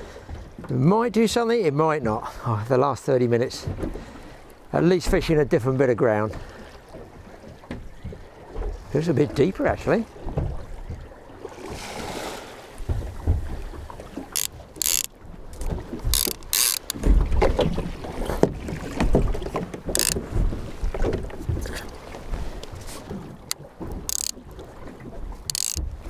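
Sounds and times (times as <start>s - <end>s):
water slapping around boat: 0.0s - 26.0s
fishing reel knocks and clicks: 14.3s - 17.2s, 19.9s - 20.2s, 23.5s - 24.4s, 25.4s - 25.9s.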